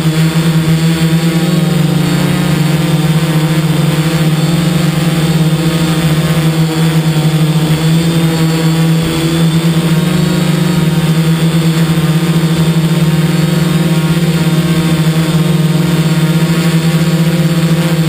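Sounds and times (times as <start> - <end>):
drone motors buzzing: 0.0 - 18.0.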